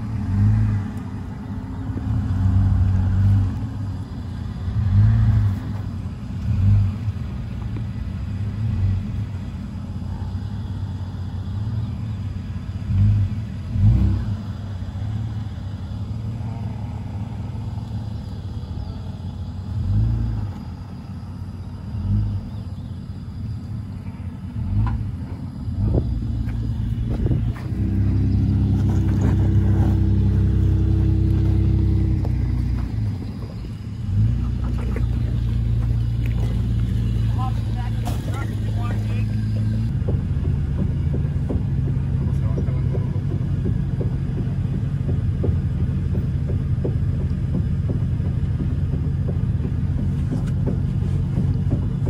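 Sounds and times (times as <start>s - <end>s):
suv engine running: 0.0s - 52.0s
low thumps: 24.5s - 52.0s.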